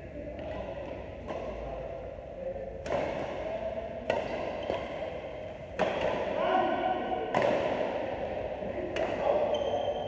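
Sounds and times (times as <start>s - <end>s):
racquets hitting shuttlecock: 2.8s - 6.3s, 7.3s - 7.9s.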